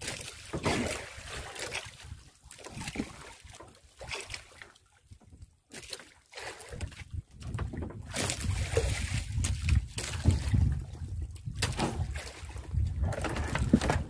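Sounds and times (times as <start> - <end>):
waves sloshing against boat hull: 0.0 - 14.0
wind buffeting microphone: 6.8 - 14.0.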